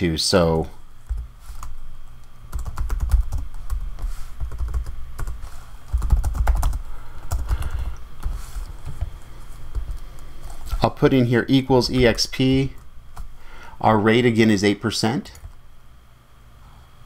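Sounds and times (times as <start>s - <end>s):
keyboard typing: 1.0s - 1.8s, 2.5s - 10.2s.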